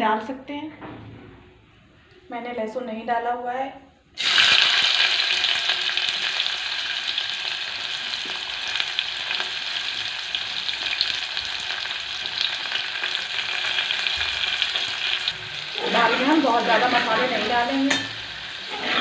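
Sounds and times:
frying hiss with crackles: 0:04.2 - 0:19.0
onion sizzling in hot oil: 0:04.2 - 0:19.0.

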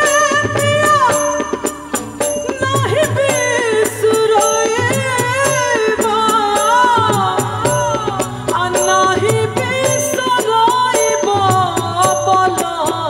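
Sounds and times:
band accompaniment: 0:00.0 - 0:13.0
steady percussion beat: 0:00.0 - 0:13.0
woman singing into a microphone: 0:00.0 - 0:13.0.

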